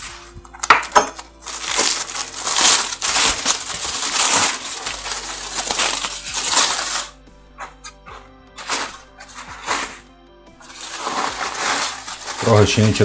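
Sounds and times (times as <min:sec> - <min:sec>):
foil and paper crinkling: 0:00.0 - 0:07.2, 0:08.6 - 0:13.0.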